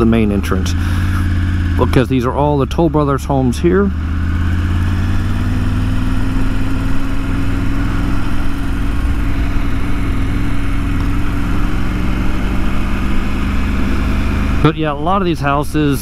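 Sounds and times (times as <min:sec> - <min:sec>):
motorcycle engine running: 0:00.0 - 0:16.0
road noise: 0:00.0 - 0:16.0.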